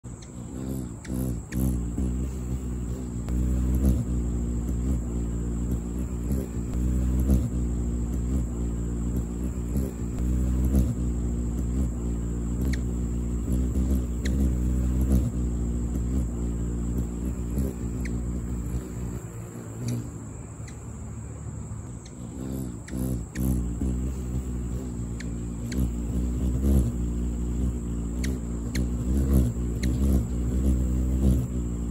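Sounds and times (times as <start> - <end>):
hummingbird wings humming: 0.0 - 31.9
faint high ticks: 12.5 - 16.3, 16.9 - 20.8, 21.8 - 27.0, 27.6 - 31.9.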